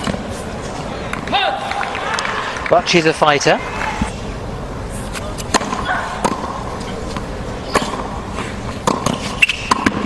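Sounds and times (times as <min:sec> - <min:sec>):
stadium background hum: 0:00.0 - 0:10.0.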